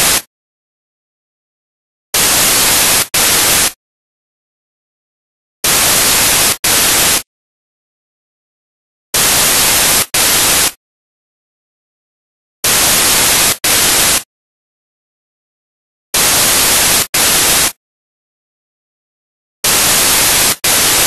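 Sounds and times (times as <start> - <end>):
white-noise static bursts: 0.0 - 0.3, 2.2 - 3.8, 5.6 - 7.3, 9.2 - 10.8, 12.6 - 14.3, 16.2 - 17.8, 19.6 - 21.0.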